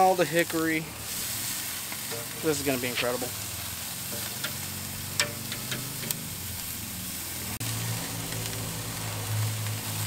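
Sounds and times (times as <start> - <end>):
chicken sizzling on a grill: 0.0 - 10.0
metal tongs clicking: 4.4 - 6.2.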